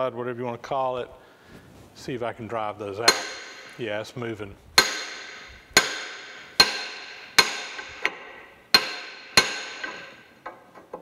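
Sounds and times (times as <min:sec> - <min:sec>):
hammer striking metal rod: 0:03.0 - 0:03.8, 0:04.8 - 0:10.6.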